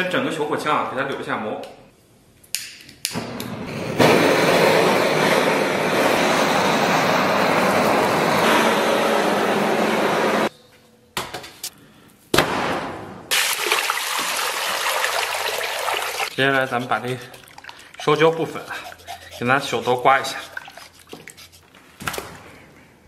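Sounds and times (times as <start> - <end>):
blowtorch flame hissing: 3.5 - 10.5.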